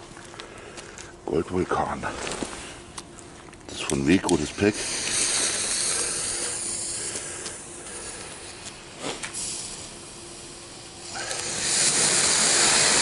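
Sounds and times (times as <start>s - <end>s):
firework fuse hissing and sputtering: 4.6s - 13.0s.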